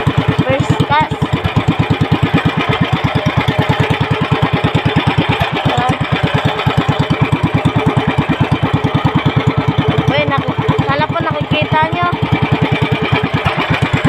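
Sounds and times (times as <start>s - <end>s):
boat engine puttering: 0.0s - 14.0s.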